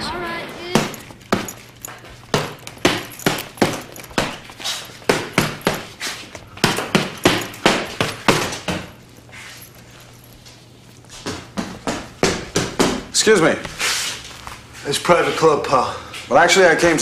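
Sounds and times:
fists punching heavy bag: 0.7s - 6.0s, 6.6s - 9.0s.

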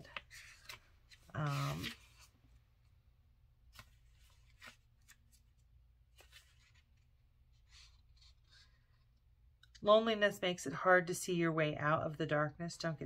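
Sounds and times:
paper cards tapping and rustling: 0.0s - 2.3s.

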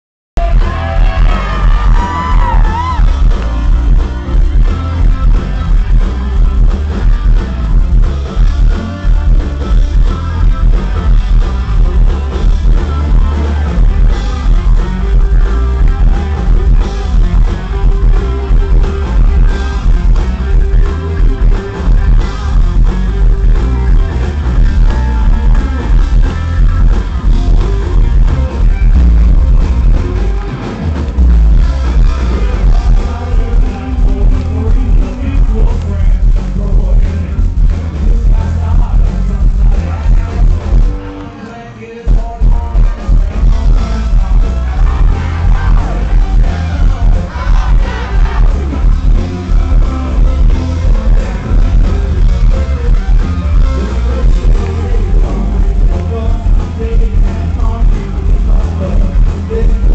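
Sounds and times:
person singing: 0.4s - 6.6s, 31.6s - 59.9s
live country-rock band: 0.4s - 59.9s.

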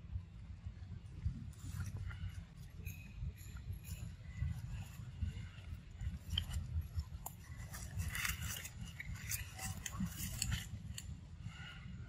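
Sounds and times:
leaves and twigs rustling: 1.5s - 11.7s.

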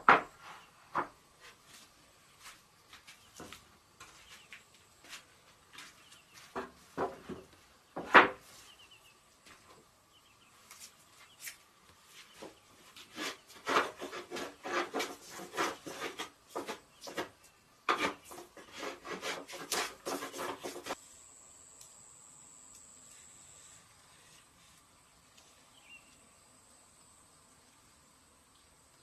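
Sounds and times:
hand plane shaving wood: 12.9s - 21.0s.

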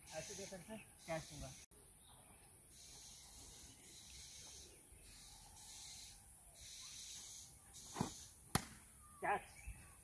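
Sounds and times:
cricket bat striking ball: 8.0s - 8.8s.

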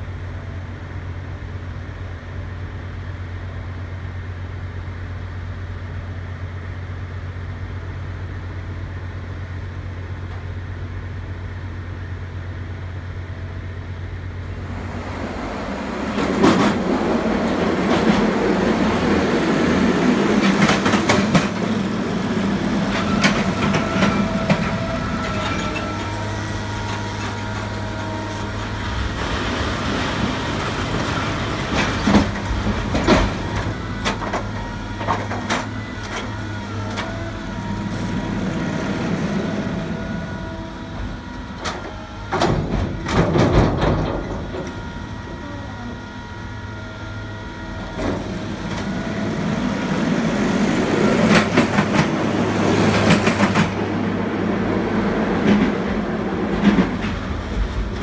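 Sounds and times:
low engine hum: 0.0s - 58.0s
train wheels clacking: 15.7s - 27.8s, 49.6s - 58.0s
wagons clanking: 15.9s - 27.9s.

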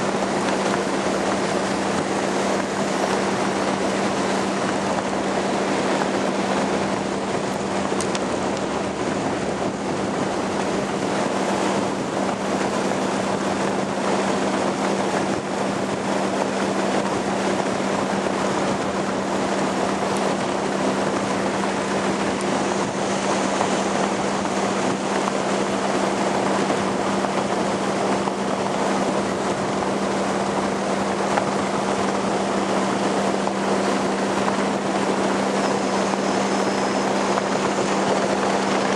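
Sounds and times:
motorboat engine hum: 0.0s - 38.9s
wind and water rushing: 0.0s - 38.9s.

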